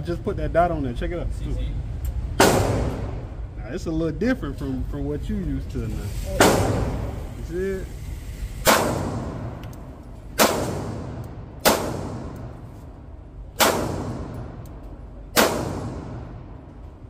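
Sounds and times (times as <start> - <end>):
pistol shots echoing: 2.4 - 3.2, 8.6 - 9.6, 10.4 - 12.6, 13.5 - 14.7, 15.3 - 16.5.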